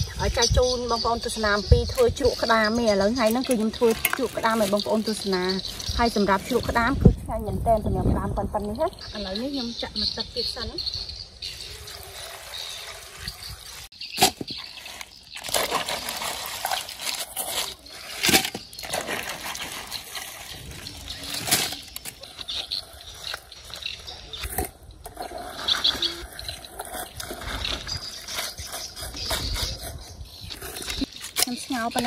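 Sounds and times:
crabs clattering against metal pot: 3.1s - 6.0s.

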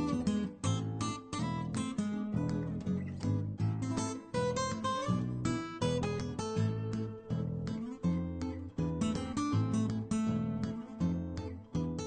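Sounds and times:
strummed acoustic guitar: 0.0s - 12.0s.

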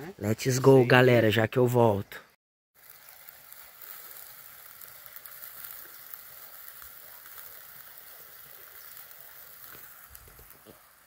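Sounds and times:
fire crackling and popping: 2.8s - 11.0s
meat sizzling on grill: 2.8s - 11.0s.

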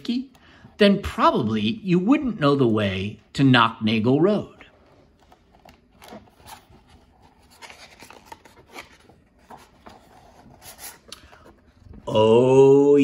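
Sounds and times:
paper page rustling: 4.6s - 12.0s.

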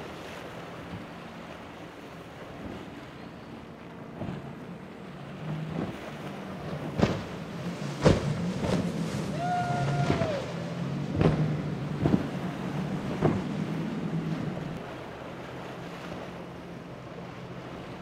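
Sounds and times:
outboard engine drone: 0.0s - 18.0s
boat hull slamming on waves: 5.6s - 14.8s.

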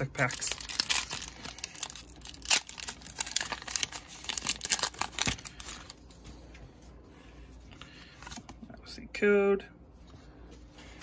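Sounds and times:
foil wrapper tearing and crinkling: 0.0s - 6.0s.

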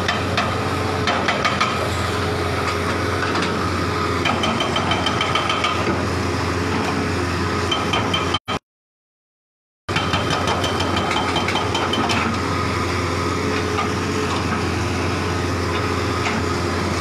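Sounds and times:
diesel engine running: 0.0s - 8.4s, 9.9s - 17.0s.

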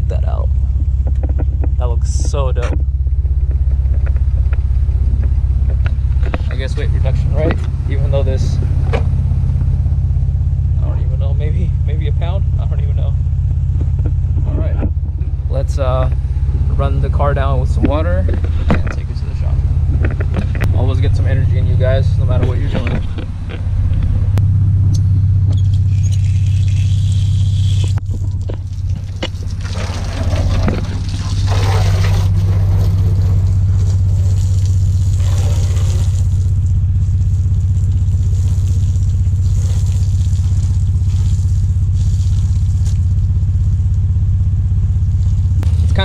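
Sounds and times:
low motor drone: 0.0s - 46.0s
hose spraying water on car: 25.7s - 44.0s.

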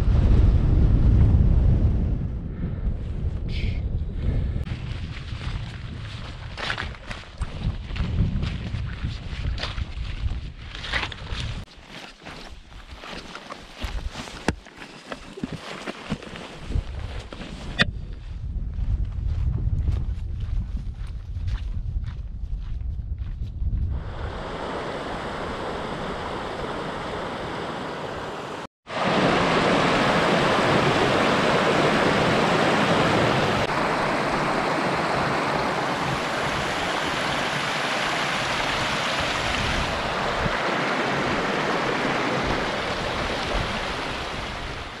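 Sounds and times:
stream running over stones: 29.0s - 45.0s.

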